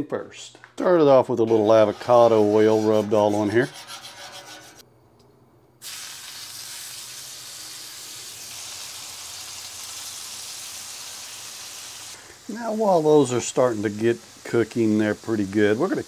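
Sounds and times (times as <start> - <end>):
brush scrubbing griddle: 1.4 - 4.8
chicken sizzling on griddle: 5.8 - 16.0.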